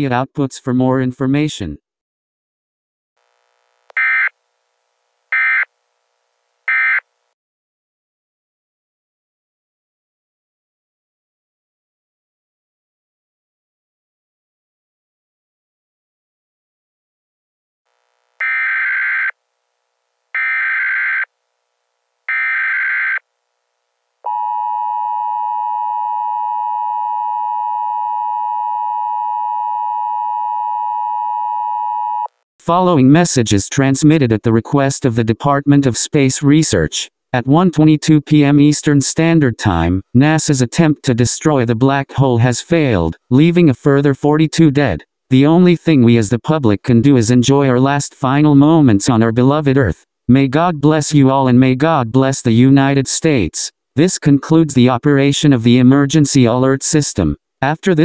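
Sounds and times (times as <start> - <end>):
harsh electronic data tone bursts: 3.7 - 4.3, 5.3 - 5.7, 6.7 - 7.0, 18.4 - 19.4, 20.4 - 21.3, 22.3 - 23.2.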